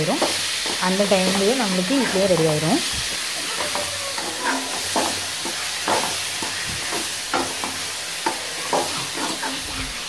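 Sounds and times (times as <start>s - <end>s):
onions frying in oil sizzling: 0.0s - 10.0s
metal ladle scraping a pan: 2.0s - 10.0s.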